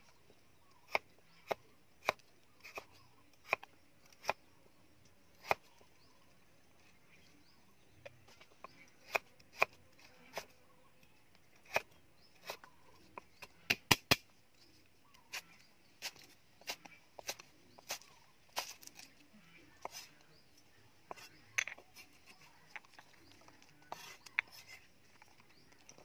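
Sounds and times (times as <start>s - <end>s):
cleaver chopping on wooden block: 13.7s - 14.2s.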